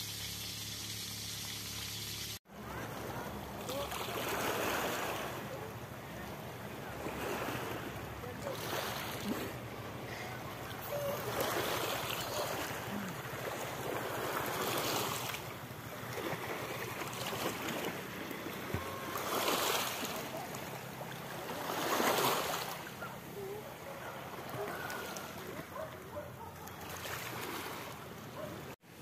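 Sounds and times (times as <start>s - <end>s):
waves washing onto pebbles: 10.5s - 22.9s.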